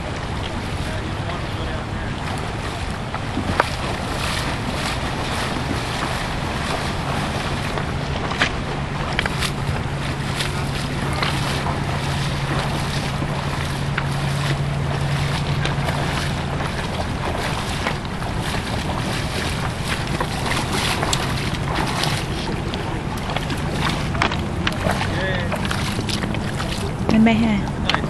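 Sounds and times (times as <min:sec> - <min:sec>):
low steady hum: 0:00.0 - 0:28.0
shallow river rushing: 0:00.0 - 0:28.0
splashes of wading: 0:00.0 - 0:28.0
wind buffeting microphone: 0:00.0 - 0:28.0.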